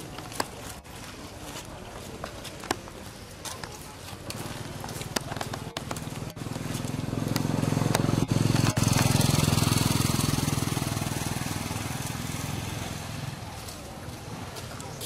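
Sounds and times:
vehicle engine passing by: 5.6s - 15.0s.

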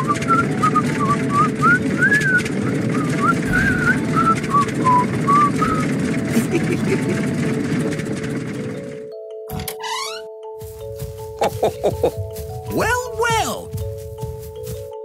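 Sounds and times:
person whistling a tune: 0.0s - 6.0s
tractor engine running: 0.0s - 15.0s.

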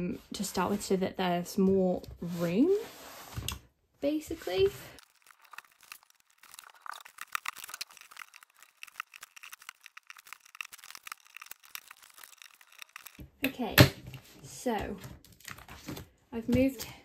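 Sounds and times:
plastic sleeves rustling and clicking: 4.9s - 13.3s.

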